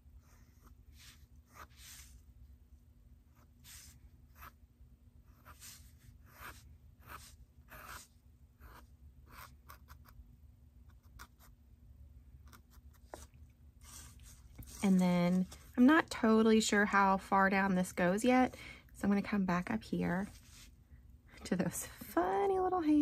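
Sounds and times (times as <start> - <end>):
marker strokes on paper: 0.5 - 2.3, 3.4 - 4.6, 5.3 - 10.0, 12.5 - 16.0, 20.2 - 20.8.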